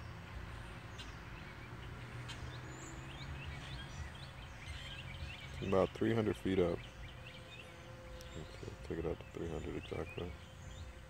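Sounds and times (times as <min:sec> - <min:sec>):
low outdoor rumble: 0:00.0 - 0:11.0
small birds chirping: 0:00.0 - 0:11.0.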